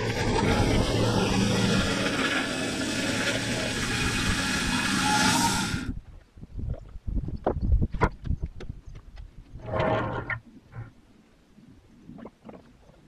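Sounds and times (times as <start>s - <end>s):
band sawmill engine running: 0.0s - 5.9s.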